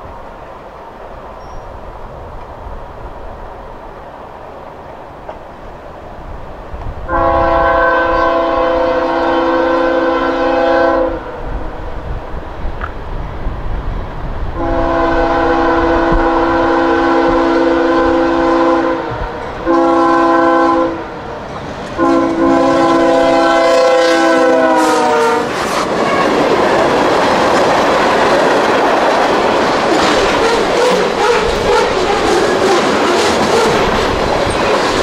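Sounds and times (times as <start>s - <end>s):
train wheels rumbling and clacking: 0.0s - 35.0s
locomotive air horn blasts: 7.1s - 11.4s, 14.6s - 21.1s, 22.0s - 26.3s.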